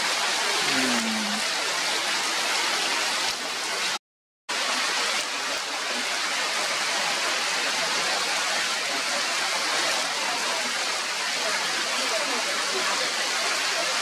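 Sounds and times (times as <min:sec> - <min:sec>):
rain falling on leaves: 0:00.0 - 0:14.0.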